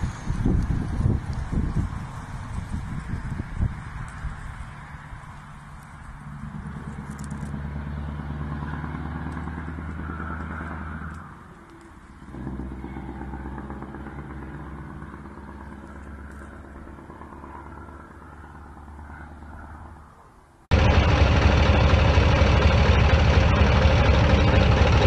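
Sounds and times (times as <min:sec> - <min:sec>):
truck engine running: 0:00.0 - 0:19.8, 0:20.7 - 0:25.0.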